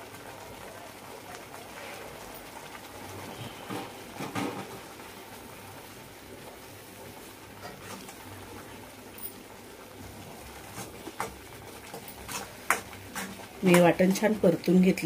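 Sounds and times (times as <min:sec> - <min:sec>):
paste sizzling in oil: 0:10.0 - 0:14.7.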